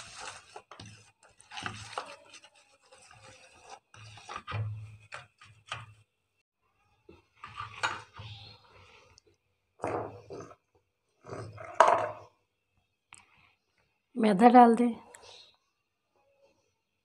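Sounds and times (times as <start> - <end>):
hand squishing batter in steel bowl: 0.0 - 6.1.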